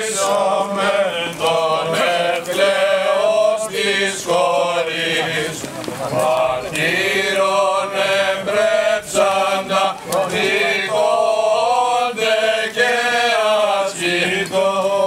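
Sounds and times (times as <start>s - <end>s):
voices chanting: 0.0s - 15.0s.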